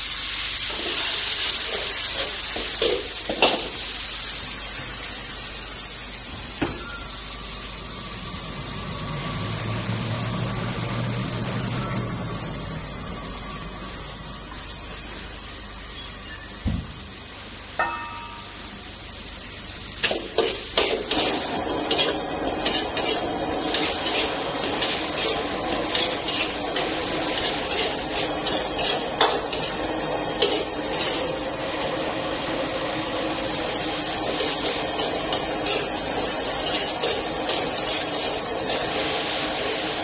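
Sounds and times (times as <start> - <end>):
wok stir-frying hiss: 0.0 - 40.0
metal utensil clinking on wok: 17.8 - 18.6.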